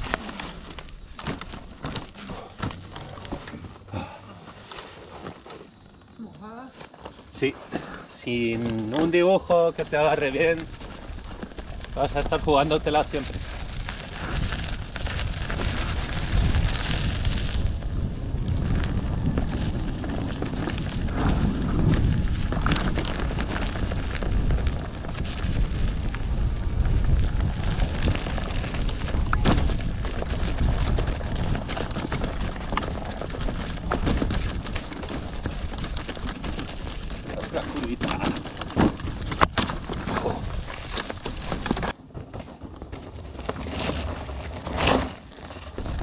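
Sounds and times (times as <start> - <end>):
rattling over rocky trail: 0.0 - 46.0
wind buffeting microphone: 8.3 - 41.9.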